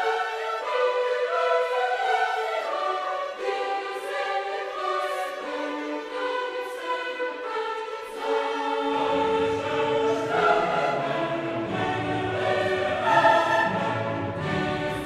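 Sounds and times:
classical choral music: 0:00.0 - 0:15.0.

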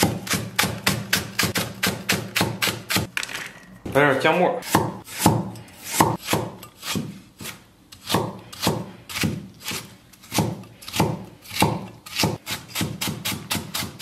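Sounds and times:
cleaver chopping on wooden board: 0:04.7 - 0:14.0.

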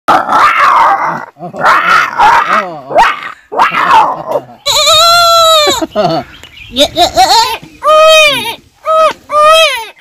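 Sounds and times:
man imitating dog barks: 0:01.5 - 0:04.5.

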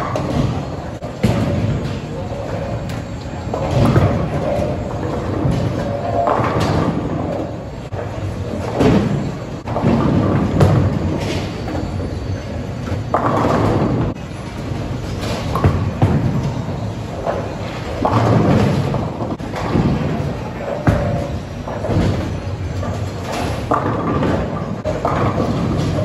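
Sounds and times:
bowling balls rumbling: 0:00.0 - 0:26.0
bowling pins crashing: 0:08.4 - 0:11.9, 0:13.0 - 0:26.0.

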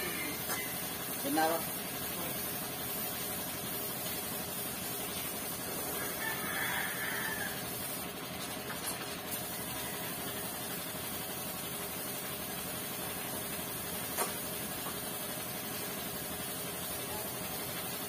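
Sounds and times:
rooster crowing: 0:05.8 - 0:07.8, 0:09.5 - 0:10.6.

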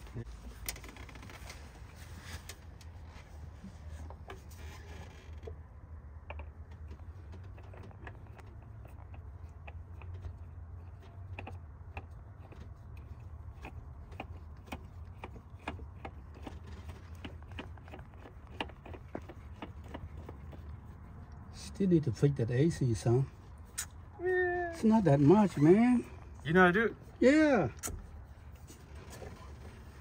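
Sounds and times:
light clicks and taps on metal: 0:05.4 - 0:21.5.

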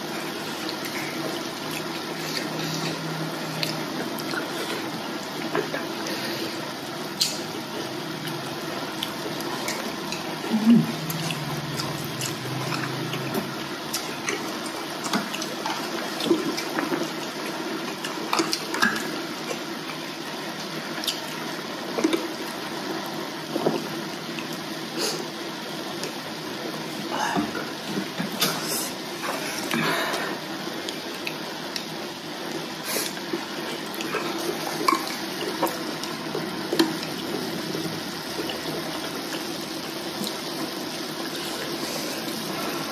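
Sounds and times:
wet chewing and slurping: 0:00.2 - 0:20.1.

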